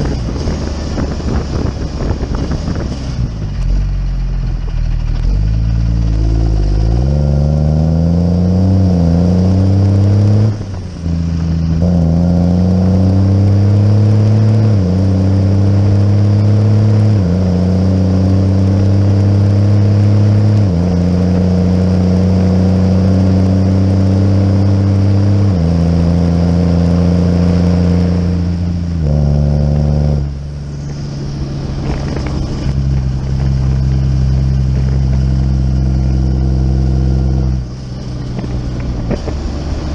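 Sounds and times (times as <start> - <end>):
tractor diesel engine working hard: 0.0 - 7.6.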